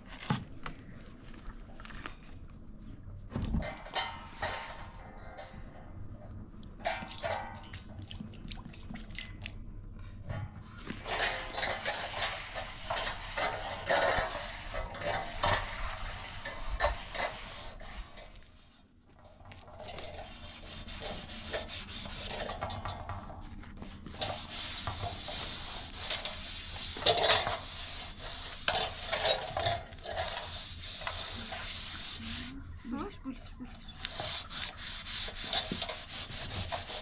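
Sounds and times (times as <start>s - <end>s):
rubbing and scraping: 3.6s - 5.8s, 10.7s - 33.0s, 33.6s - 37.0s.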